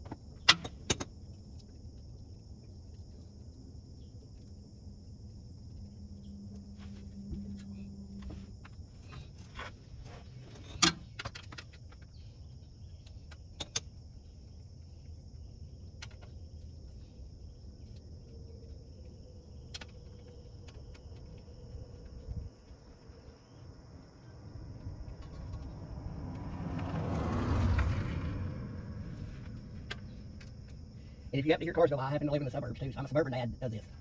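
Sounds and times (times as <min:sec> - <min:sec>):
insects droning: 0:00.0 - 0:34.0
passing car rumble: 0:23.8 - 0:31.0.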